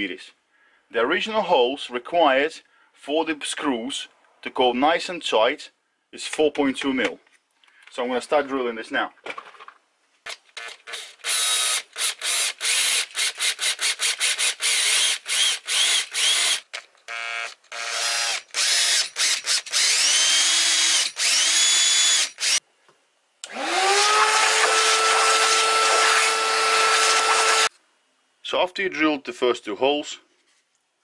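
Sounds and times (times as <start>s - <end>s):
cordless drill boring into metal: 10.6s - 22.6s, 23.4s - 27.7s
vacuum cleaner running: 23.5s - 27.7s.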